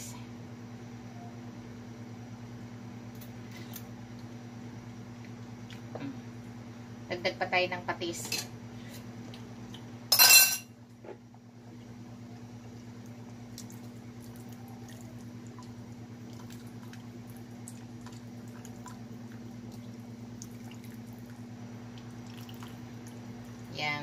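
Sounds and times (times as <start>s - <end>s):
steady low hum: 0.0s - 24.0s
soup bubbling: 12.7s - 23.7s.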